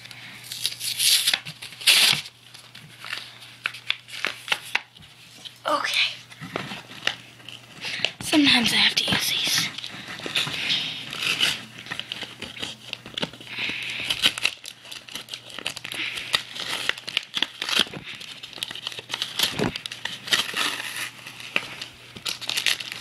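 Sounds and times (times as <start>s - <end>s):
plastic packaging crinkling and tearing: 0.0s - 23.0s.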